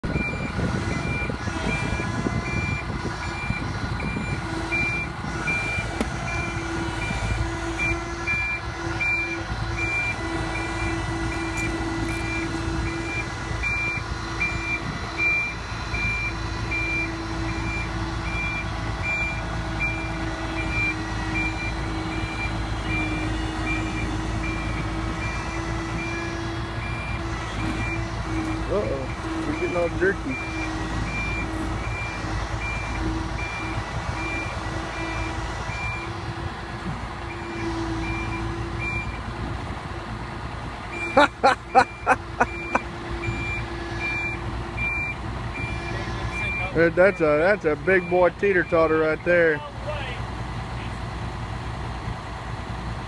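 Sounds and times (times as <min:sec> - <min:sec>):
engine humming: 0:00.0 - 0:53.0
backup alarm beeping: 0:07.8 - 0:36.1, 0:41.0 - 0:45.8.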